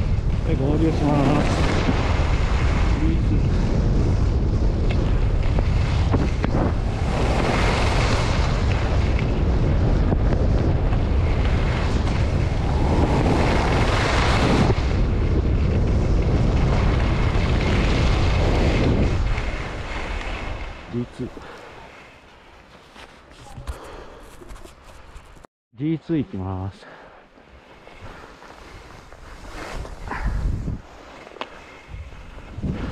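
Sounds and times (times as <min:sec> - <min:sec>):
wind buffeting microphone: 0:00.0 - 0:21.5, 0:28.0 - 0:30.9, 0:31.8 - 0:32.9.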